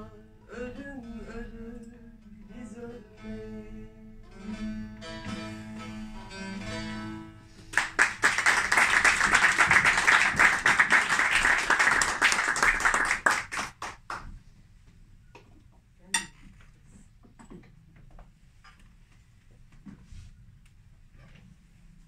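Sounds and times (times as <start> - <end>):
plucked lute notes: 1.0 - 7.7
audience applause: 7.7 - 14.2.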